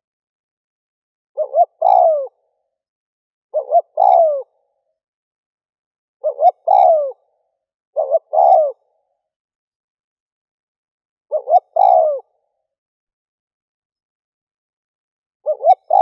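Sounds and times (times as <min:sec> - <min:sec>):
dove cooing: 0:01.4 - 0:02.4, 0:03.5 - 0:04.6, 0:06.2 - 0:07.3, 0:08.0 - 0:09.0, 0:11.3 - 0:12.4, 0:15.4 - 0:16.0.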